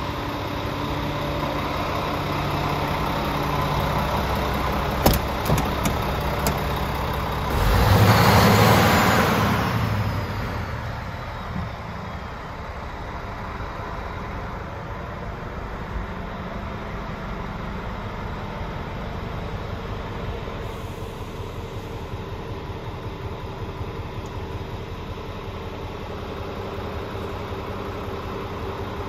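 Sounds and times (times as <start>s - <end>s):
diesel engine idling: 0.0s - 29.0s
sharp clicks: 5.0s - 6.9s.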